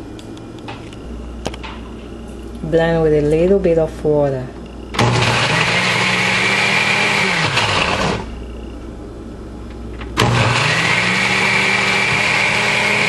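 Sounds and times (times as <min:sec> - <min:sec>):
blender motor running: 0:05.0 - 0:08.3, 0:10.2 - 0:13.0.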